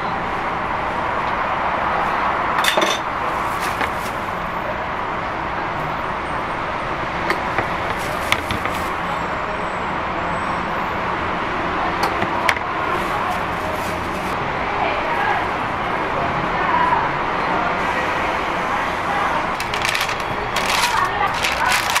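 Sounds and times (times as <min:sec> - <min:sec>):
busy food stall background noise: 0:00.0 - 0:22.0
metal utensils clinking: 0:02.6 - 0:04.1.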